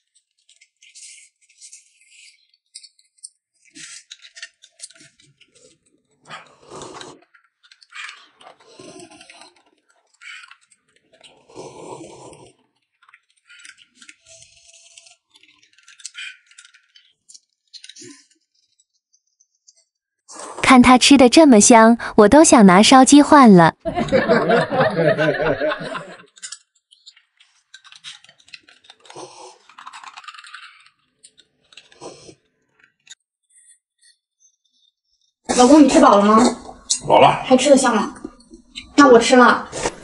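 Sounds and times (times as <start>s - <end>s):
slurping a drink: 3.7s - 17.2s, 20.3s - 20.6s, 26.2s - 32.8s, 35.5s - 40.0s.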